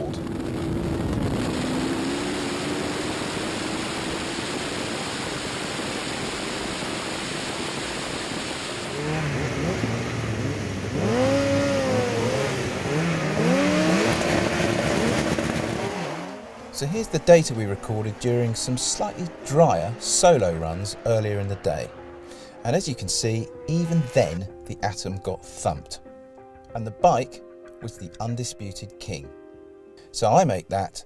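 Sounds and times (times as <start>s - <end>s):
car engine accelerating hard: 0.0s - 24.6s
wind and road noise: 0.0s - 27.0s.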